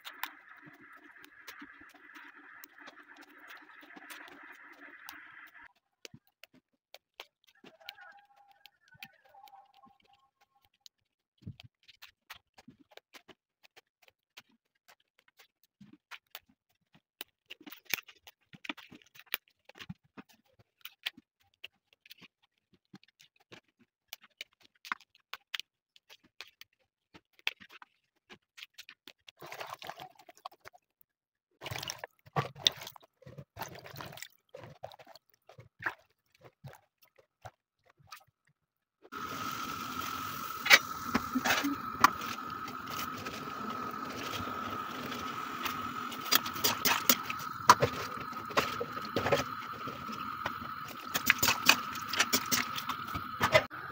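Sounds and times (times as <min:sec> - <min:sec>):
boiling water hiss: 0:00.0 - 0:05.7, 0:39.1 - 0:53.9
pods rinsed in water: 0:00.0 - 0:10.7, 0:29.4 - 0:30.9, 0:31.6 - 0:53.9.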